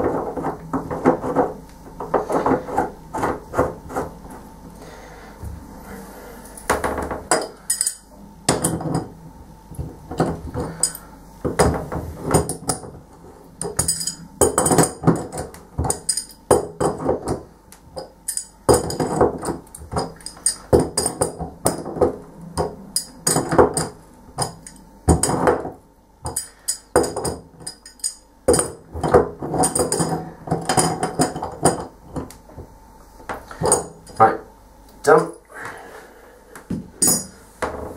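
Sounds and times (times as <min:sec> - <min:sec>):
spanner clicking and clinking on metal: 0:07.4 - 0:08.0, 0:13.6 - 0:17.0, 0:18.0 - 0:21.8, 0:26.3 - 0:28.7.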